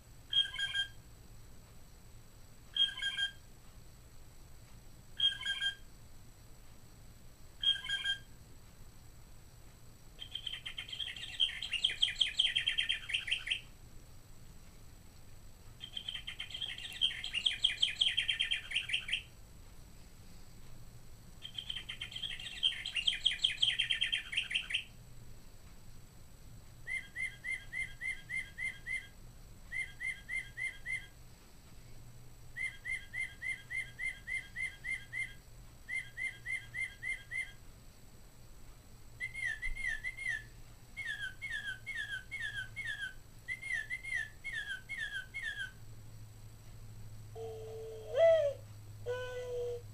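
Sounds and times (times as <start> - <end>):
repeated whistled bird notes: 0.3 - 1.0, 2.7 - 3.5, 5.2 - 5.9, 7.6 - 8.4, 10.2 - 13.7, 15.8 - 19.3, 21.4 - 24.9, 26.8 - 29.1, 29.7 - 31.2, 32.6 - 37.6, 39.2 - 45.8
slurred bird whistles: 0.3 - 1.0, 2.7 - 3.4, 5.2 - 5.8, 7.6 - 8.3, 10.2 - 13.6, 15.8 - 19.3, 21.4 - 24.9, 26.8 - 29.1, 29.7 - 31.2, 32.6 - 37.6, 39.2 - 45.8
trilled bird songs from speaker: 0.3 - 1.0, 2.7 - 3.5, 5.2 - 5.9, 7.6 - 8.4, 10.2 - 13.7, 15.8 - 19.3, 21.4 - 25.0, 26.8 - 29.1, 29.7 - 31.2, 32.6 - 37.6, 39.2 - 45.8.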